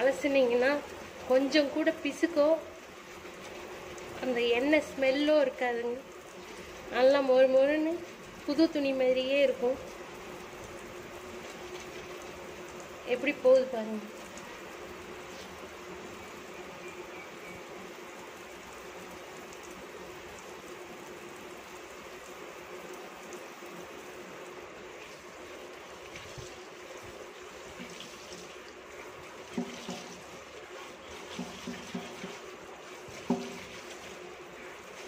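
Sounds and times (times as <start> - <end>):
cloth rinsed and squeezed: 24.9 - 35.0
tap water running into sink: 24.9 - 35.0
sharp water splashes: 27.6 - 30.5, 31.1 - 34.3.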